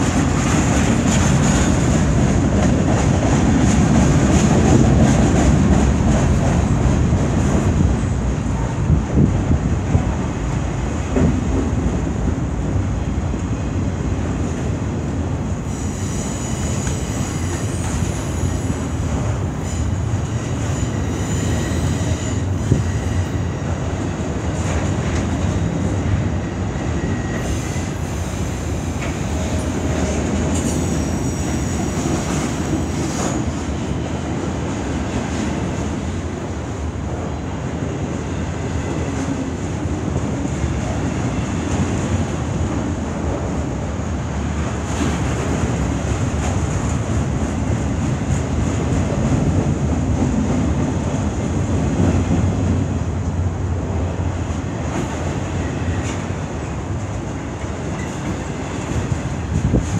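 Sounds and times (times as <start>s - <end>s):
train wheels rumbling on rail: 0.0s - 59.9s
high-pitched wheel squeal: 15.7s - 18.7s, 30.7s - 32.0s.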